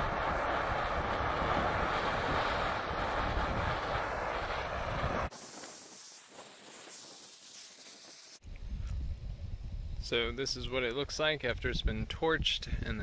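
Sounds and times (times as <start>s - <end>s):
gas torch hissing: 0.0s - 8.4s.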